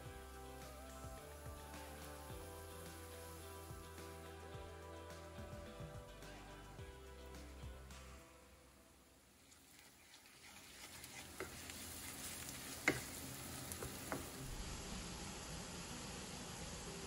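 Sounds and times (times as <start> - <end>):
food sizzling in a pan: 0.0 - 5.4, 9.3 - 17.0.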